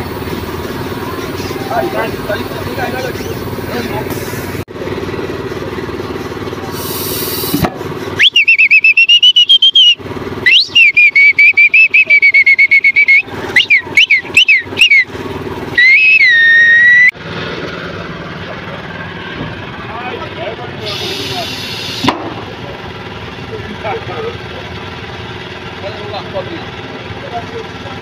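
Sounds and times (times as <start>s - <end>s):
shrill trilled whistling: 8.2s - 17.1s.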